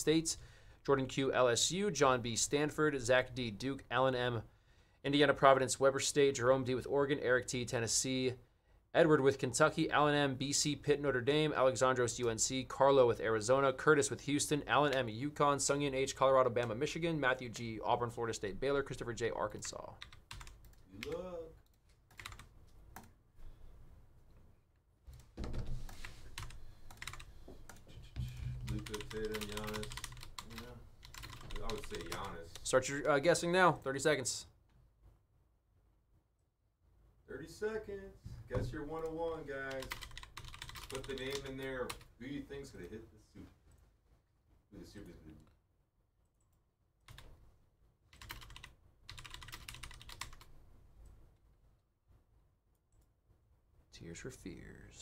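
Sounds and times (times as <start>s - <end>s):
computer keyboard typing: 19.6s - 23.1s, 25.9s - 27.8s, 28.4s - 32.7s, 39.7s - 42.1s, 46.3s - 47.3s, 48.1s - 50.5s.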